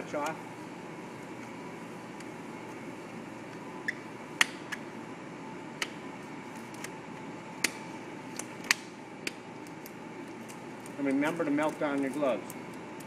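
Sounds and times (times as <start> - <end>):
steady background hum: 0.0 - 13.0
latex gloves snapping: 4.4 - 4.8, 7.6 - 11.0.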